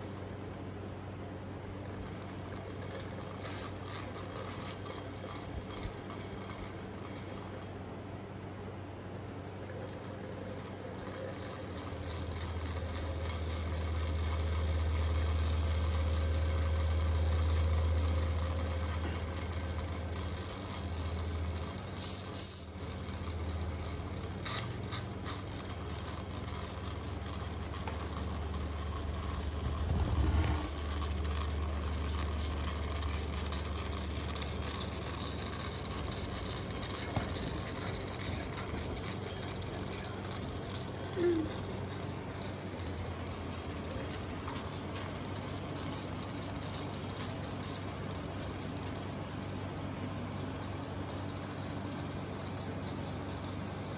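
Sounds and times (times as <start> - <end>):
shrill steam whistle blasts: 22.0 - 23.0.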